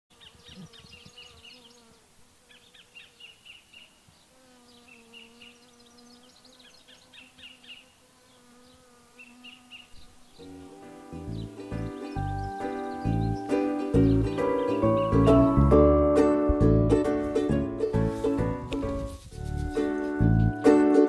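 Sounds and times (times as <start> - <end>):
bee buzzing: 0.1 - 20.6
music: 10.4 - 21.0
high bird chirps: 11.2 - 15.5.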